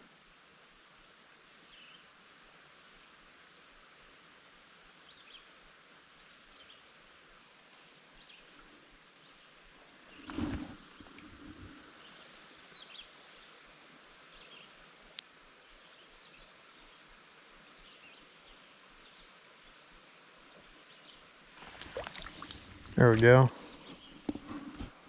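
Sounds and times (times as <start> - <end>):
faint high buzz: 10.2 - 23.8.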